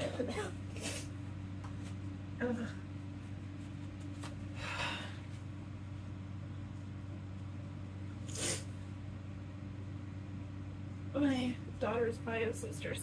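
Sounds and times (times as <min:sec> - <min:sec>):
low room hum: 0:00.0 - 0:13.0
woman sniffing: 0:08.3 - 0:08.7.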